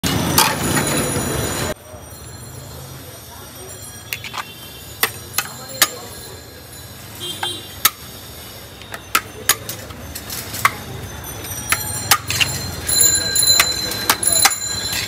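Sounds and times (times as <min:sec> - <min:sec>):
metal spoon clinking on metal pot: 0:04.0 - 0:06.4, 0:08.9 - 0:15.0.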